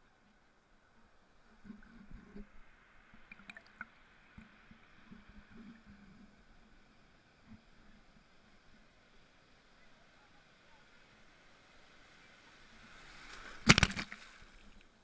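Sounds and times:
water slapping against camera: 13.5 - 14.4.

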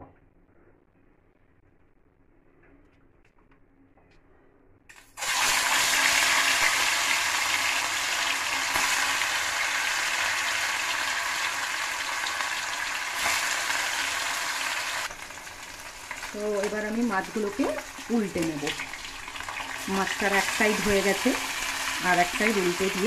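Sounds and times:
fish sizzling in hot oil: 5.0 - 23.0.

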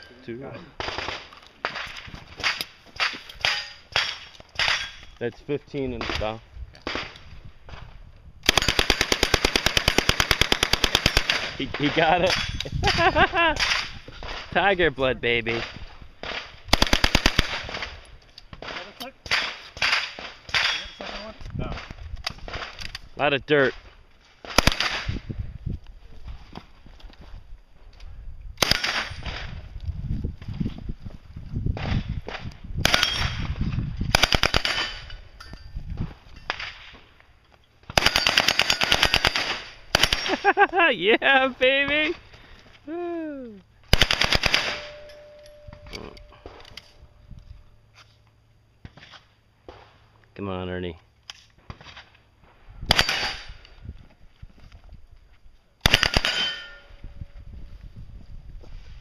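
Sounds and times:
submachine gun bursts: 38.0 - 40.3, 43.9 - 45.0
metallic ringing: 44.7 - 47.0, 56.2 - 57.4.

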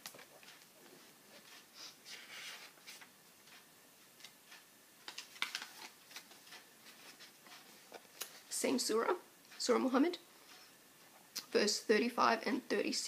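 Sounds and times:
faint paper rustle: 0.0 - 3.1.

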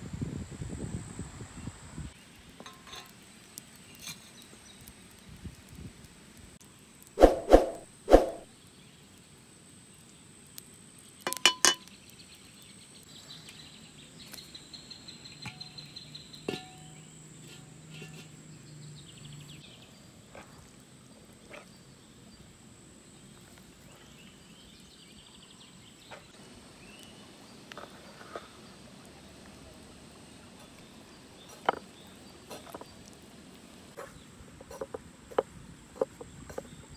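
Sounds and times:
wooden spoon knocking metal pot: 11.3 - 11.9, 16.5 - 16.9.

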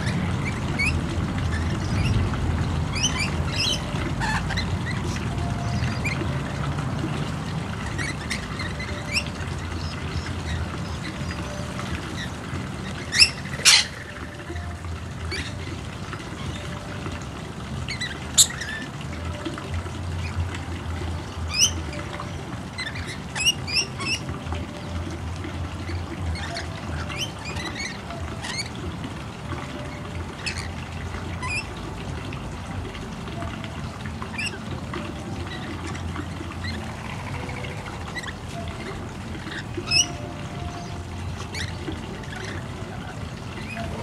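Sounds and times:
lorikeets chirping and squawking: 0.0 - 2.3, 2.9 - 6.6, 7.5 - 17.0, 17.8 - 19.4, 21.2 - 25.0, 25.8 - 28.8, 29.7 - 31.7, 34.3 - 34.6, 35.2 - 44.0
steady low rumble: 0.0 - 18.1.

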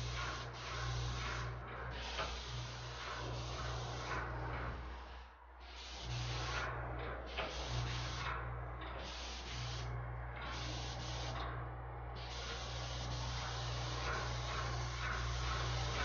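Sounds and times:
paint spray gun hissing: 0.0 - 4.3, 5.6 - 6.7, 7.3 - 8.4, 9.0 - 11.4, 12.2 - 16.0
steady low hum: 0.0 - 16.0.

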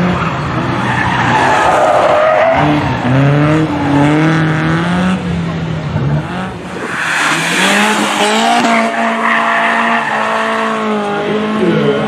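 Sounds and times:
car engine revving high: 2.5 - 11.7
tyres squealing: 6.7 - 10.8.

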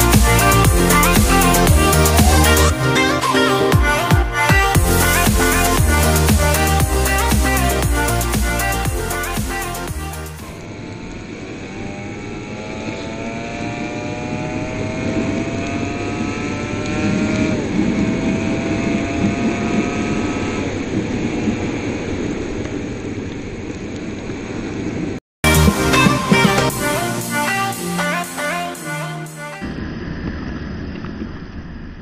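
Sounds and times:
music: 0.0 - 10.6, 25.4 - 29.7
motorcycle engine accelerating: 10.1 - 21.7.

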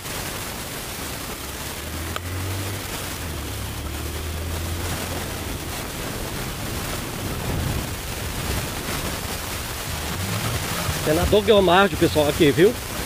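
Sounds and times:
motorcycle engine hum: 0.0 - 13.0
wind rush on microphone: 0.0 - 13.0.

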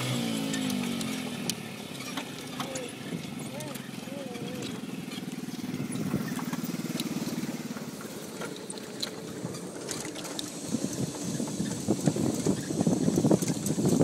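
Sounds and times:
go-kart engine running: 0.0 - 14.0.

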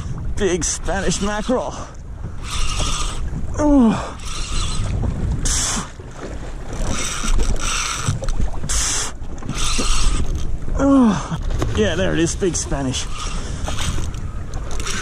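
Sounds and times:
fishing reel whirring: 0.6 - 6.0, 6.7 - 10.5, 12.8 - 15.0.

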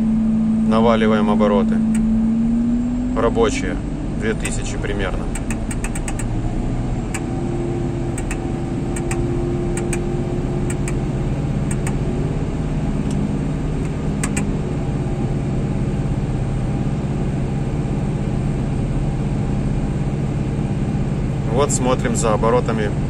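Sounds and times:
diesel engine running at high revs: 0.0 - 23.0
sharp clicks: 4.4 - 6.4, 8.2 - 10.1, 10.7 - 11.0, 11.7 - 12.0, 13.8 - 14.5.

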